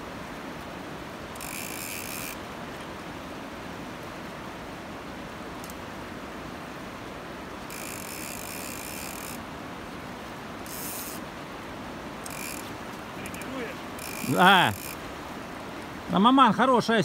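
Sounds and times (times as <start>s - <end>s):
river water rushing: 0.0s - 17.0s
fishing reel ratchet buzz: 1.4s - 2.4s, 7.7s - 9.4s, 10.6s - 11.2s, 12.2s - 12.7s, 14.0s - 15.0s.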